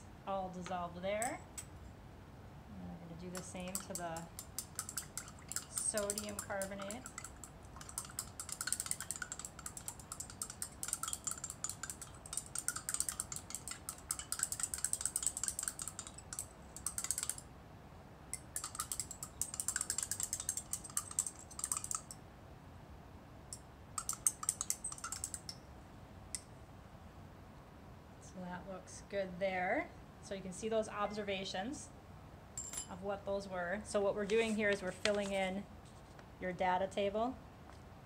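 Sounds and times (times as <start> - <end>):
stirring rod clicking against glass: 3.3 - 17.5, 18.4 - 22.2, 23.5 - 25.6.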